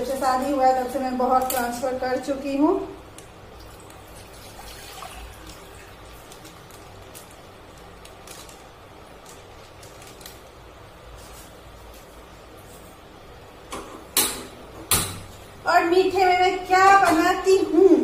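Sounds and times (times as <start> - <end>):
milk pouring into saucepan: 3.4 - 6.8.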